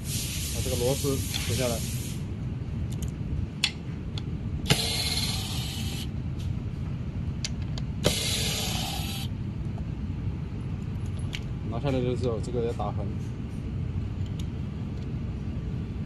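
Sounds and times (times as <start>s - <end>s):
electric screwdriver whirring: 4.7s - 6.0s, 8.0s - 9.3s.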